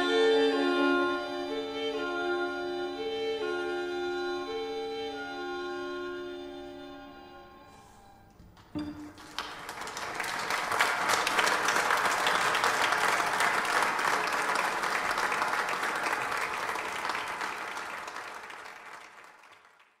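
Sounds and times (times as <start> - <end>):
audience applauding: 8.6 - 20.0.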